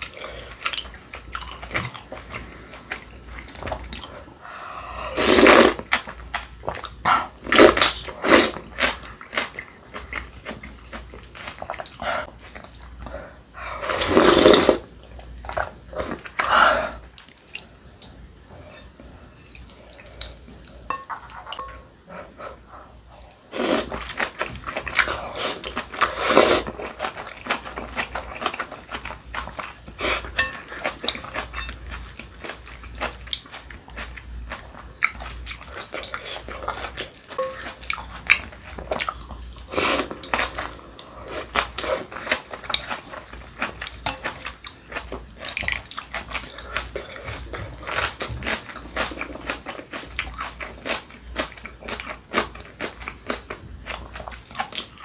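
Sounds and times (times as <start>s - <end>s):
slurping noodles: 4.9s - 5.8s, 13.8s - 14.9s.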